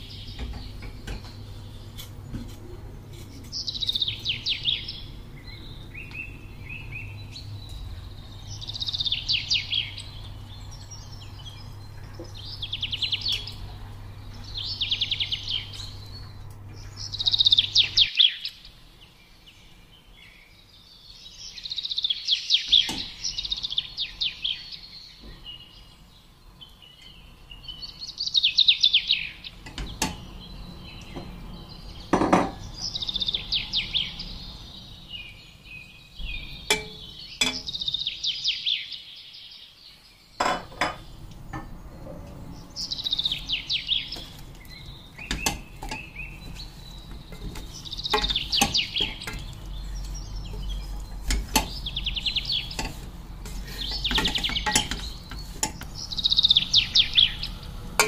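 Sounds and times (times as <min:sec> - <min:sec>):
songbird trilling: 0:03.5 - 0:13.7, 0:14.3 - 0:18.8, 0:42.6 - 0:53.0, 0:53.7 - 0:57.8
utensils clinking on metal pot: 0:36.6 - 0:37.8, 0:45.2 - 0:56.0.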